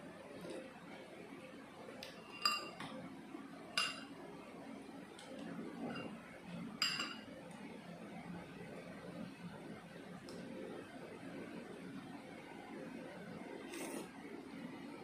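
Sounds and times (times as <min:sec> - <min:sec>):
metal spoon clinking against bowl: 0:02.0 - 0:02.9, 0:03.8 - 0:04.1, 0:06.8 - 0:07.3.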